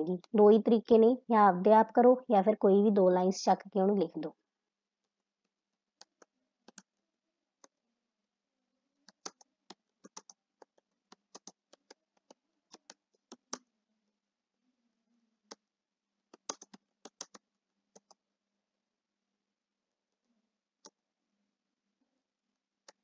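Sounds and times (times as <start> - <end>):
keyboard typing: 6.0 - 6.9, 9.0 - 13.6, 16.3 - 18.2.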